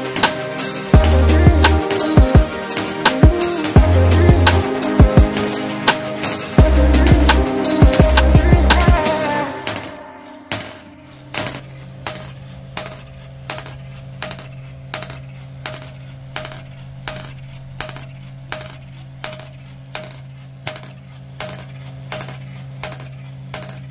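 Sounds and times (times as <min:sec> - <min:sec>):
hammer clinking on steel: 0:09.6 - 0:23.9.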